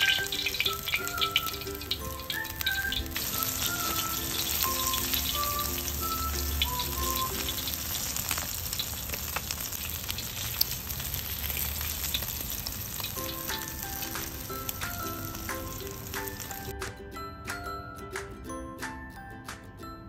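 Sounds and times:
light melody of short notes: 0.0 - 8.4, 13.2 - 20.0
fish deep-frying in oil: 0.0 - 16.7.

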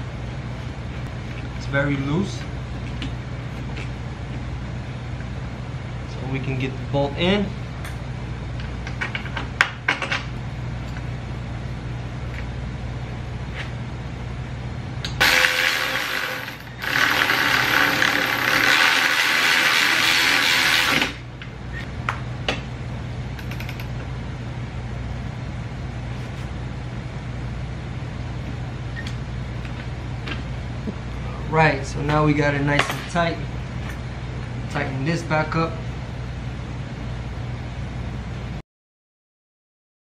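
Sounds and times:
steady low hum: 0.0 - 38.6
cordless ratchet running: 15.2 - 21.2.

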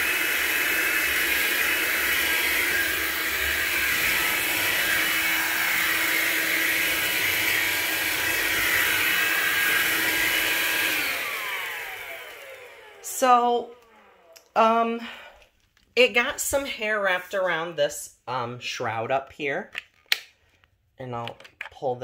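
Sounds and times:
cordless vacuum running: 0.0 - 14.4
vacuum motor winding down: 0.0 - 14.5.

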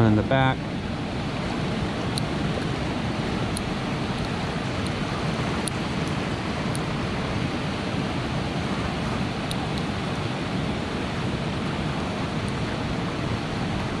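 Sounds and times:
river rapids rushing: 0.0 - 14.0
lock pick ticking: 3.5 - 5.0.

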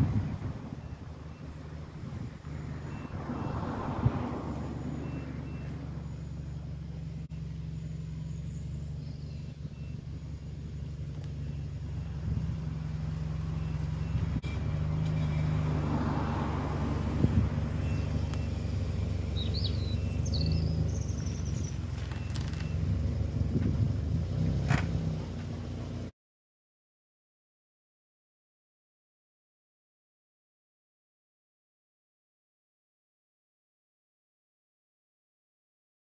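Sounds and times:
car engine idling: 0.0 - 26.1.

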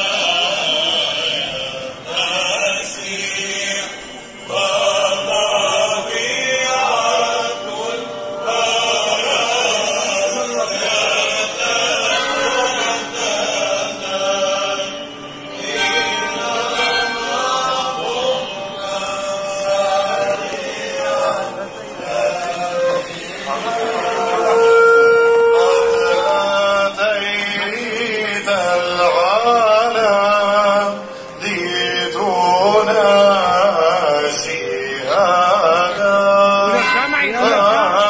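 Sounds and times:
group chanting church chant: 0.0 - 38.0.

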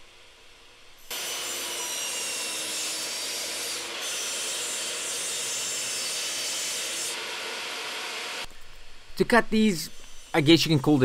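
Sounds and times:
miter saw cutting plywood: 1.0 - 8.5.

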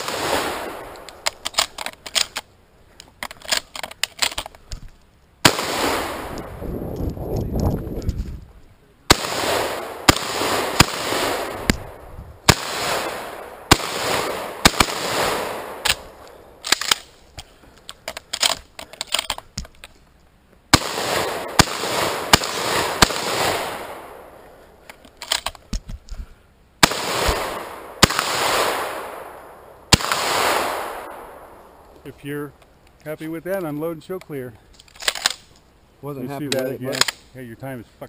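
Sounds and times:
shotgun blasts echoing: 0.0 - 1.4, 5.4 - 6.6, 9.1 - 17.1, 20.7 - 24.5, 26.8 - 31.9
gun handling clicks: 0.9 - 5.3, 15.7 - 20.2, 24.4 - 26.2, 33.6 - 35.7, 36.5 - 37.3.

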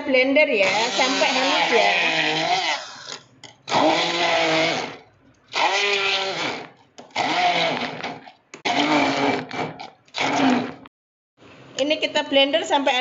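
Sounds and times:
stick blender motor whine: 0.6 - 10.9.

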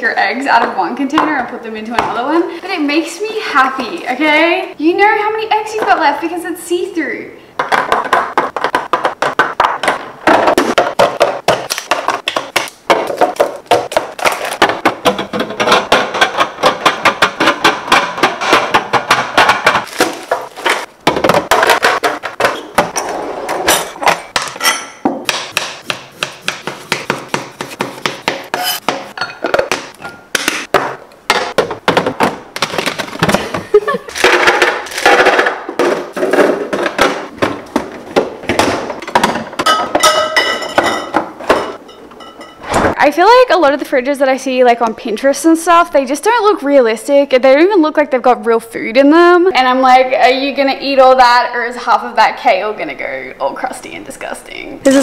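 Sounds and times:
plastic containers clattering: 7.6 - 23.0, 26.9 - 41.8.

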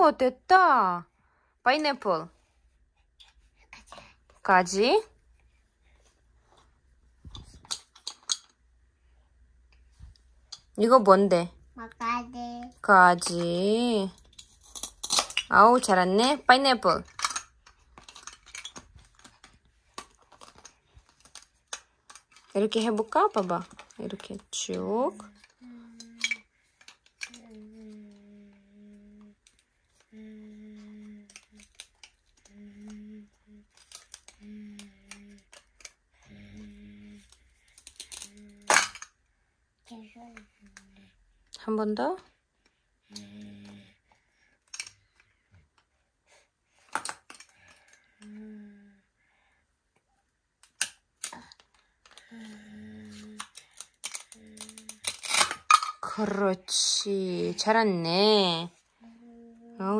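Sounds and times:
small hard objects clicking: 53.2 - 56.0.

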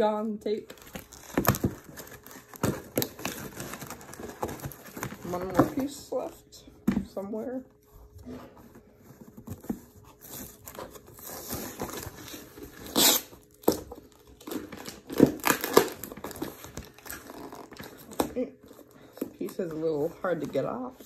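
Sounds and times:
packing tape ripping: 0.7 - 5.5, 10.2 - 18.9
cardboard scraping and crinkling: 0.7 - 21.0.

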